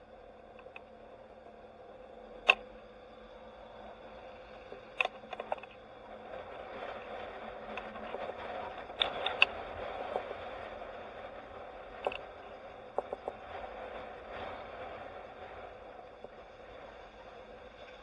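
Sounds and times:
road and wind noise: 0:00.0 - 0:18.0
sharp clicks and rattles: 0:00.5 - 0:00.9, 0:04.7 - 0:06.0, 0:06.9 - 0:10.4, 0:11.9 - 0:13.7.

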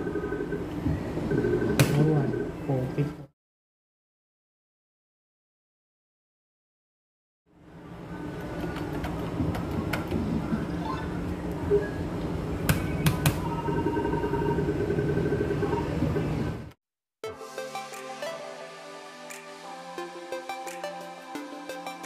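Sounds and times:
electronic music: 0:17.2 - 0:22.0.

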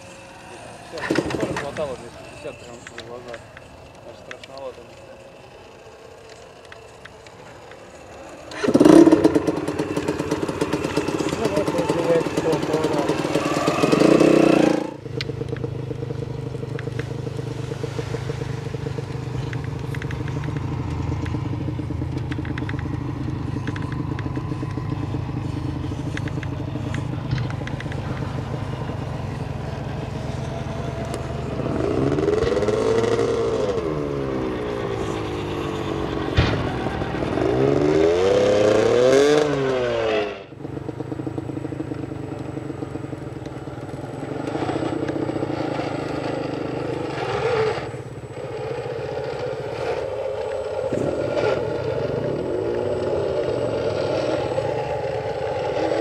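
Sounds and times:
toy truck electric motors whining: 0:00.0 - 0:15.0.

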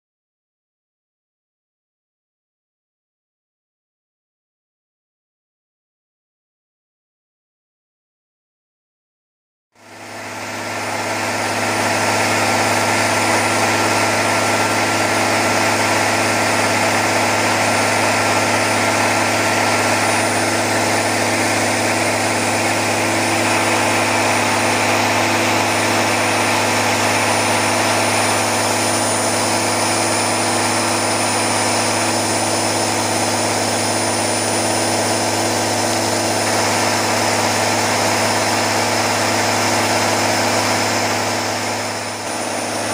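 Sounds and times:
diesel engine running: 0:09.8 - 0:42.9
high turbocharger whine: 0:09.8 - 0:42.9.

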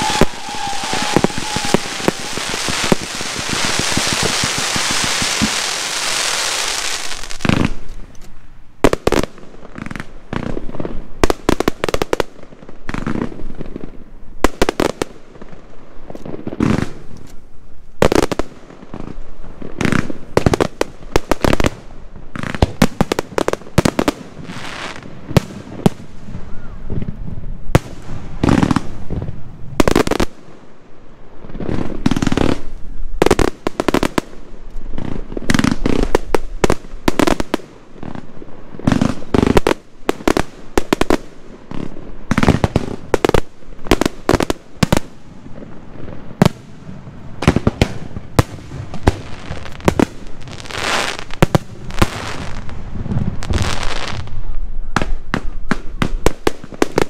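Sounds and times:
firework shells bursting: 0:00.0 - 0:07.9
firework crackle: 0:00.0 - 0:57.0.

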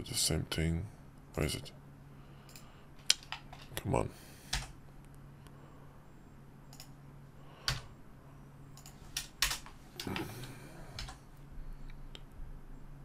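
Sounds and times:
faint low hum: 0:00.0 - 0:13.0
keyboard and mouse clicking: 0:06.7 - 0:07.0.

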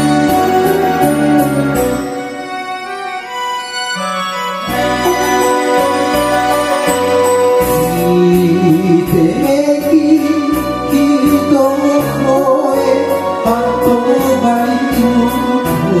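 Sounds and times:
karaoke backing track: 0:00.0 - 0:16.0
person singing: 0:04.8 - 0:16.0.

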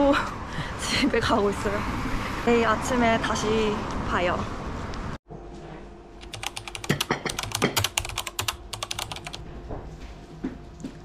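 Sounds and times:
computer keyboard typing: 0:06.2 - 0:09.4.

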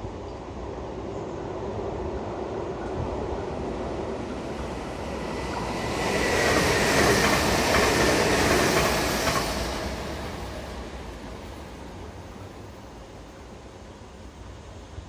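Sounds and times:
electric train passing: 0:00.0 - 0:15.0
rail-joint clacks: 0:06.3 - 0:10.2.

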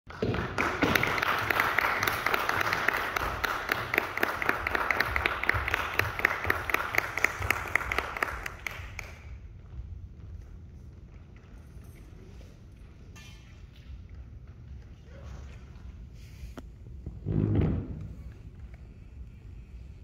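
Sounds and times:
audience applause: 0:00.1 - 0:09.3.

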